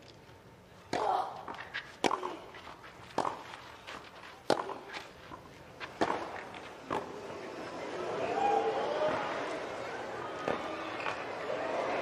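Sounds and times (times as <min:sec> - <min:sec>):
tennis racket hitting ball: 0:00.9 - 0:07.1
shoes sliding on clay: 0:01.4 - 0:07.2.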